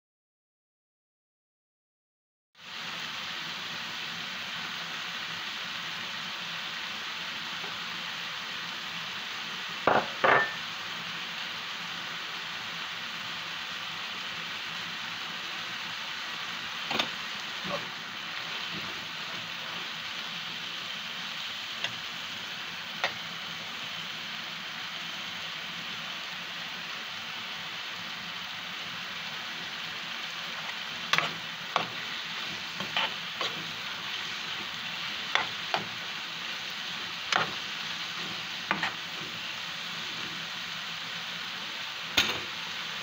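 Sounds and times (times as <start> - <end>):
vegetables sizzling in oil: 2.6 - 43.0
sharp knocks on pan: 9.9 - 10.6.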